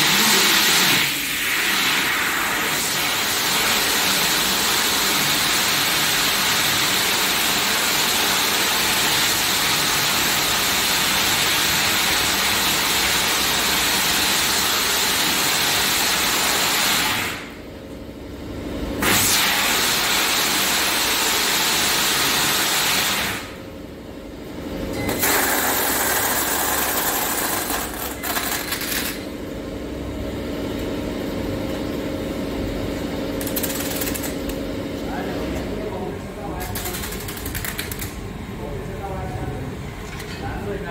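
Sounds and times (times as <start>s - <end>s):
machine rushing noise: 0.0s - 3.6s
steady machine hum: 0.0s - 40.9s.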